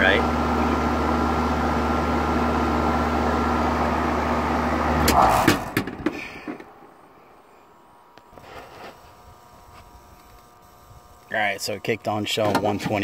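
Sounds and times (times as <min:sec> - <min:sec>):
air conditioner unit humming: 0:06.2 - 0:13.0.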